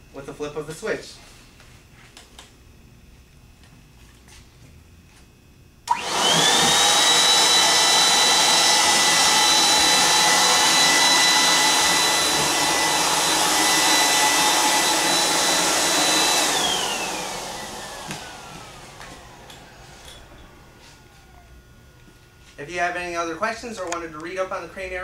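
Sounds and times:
electric blower motor whining: 5.8 - 24.0.

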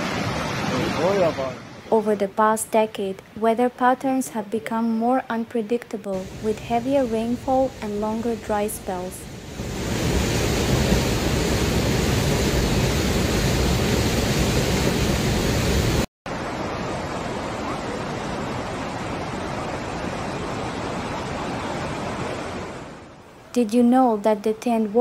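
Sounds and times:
rushing floodwater: 0.0 - 2.3, 6.1 - 23.5.

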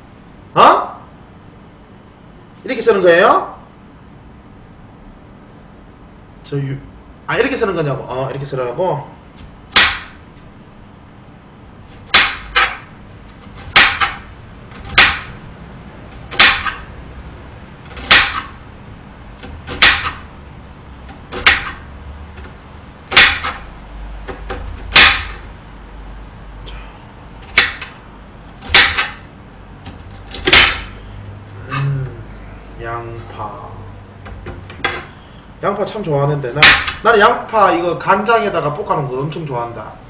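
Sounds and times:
knife slicing onion on board: 12.0 - 15.4, 17.8 - 18.6, 19.4 - 20.3, 21.0 - 25.4, 27.4 - 29.2.

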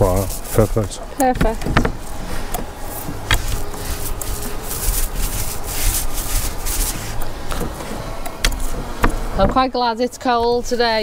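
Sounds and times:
paint roller rasping on boards: 0.0 - 9.8.

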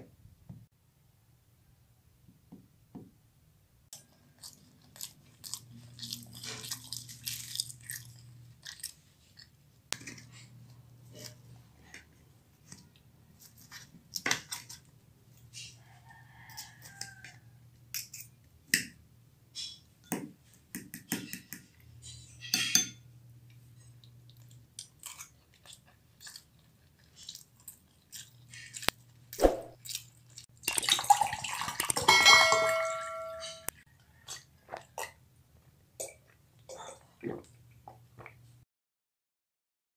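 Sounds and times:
crisp crunching and chewing: 4.0 - 9.6, 24.0 - 32.2
tableware clattering: 22.3 - 23.0, 31.9 - 33.7.

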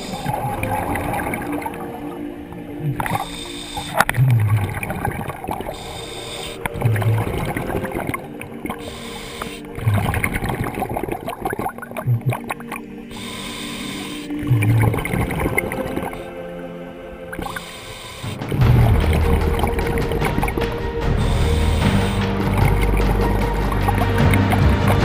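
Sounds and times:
exhaled air bubbling: 0.0 - 16.4
regulator inhale hiss: 2.9 - 4.2, 5.6 - 7.2, 8.6 - 9.9, 13.1 - 14.4, 17.4 - 18.5, 21.0 - 22.4.

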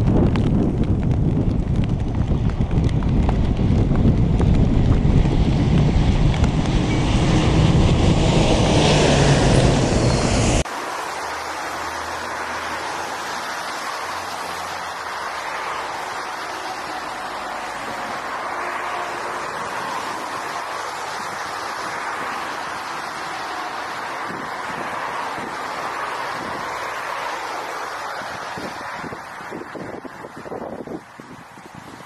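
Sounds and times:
wind buffeting microphone: 0.0 - 10.7, 13.3 - 32.0
steady rush: 0.0 - 30.4
jet engines rumbling: 0.0 - 31.2.

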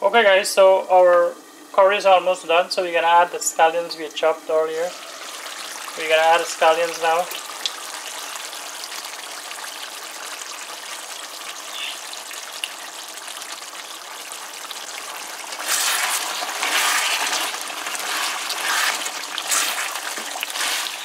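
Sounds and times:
curry boiling and bubbling: 1.4 - 21.0
spatula stirring liquid: 13.5 - 21.0.

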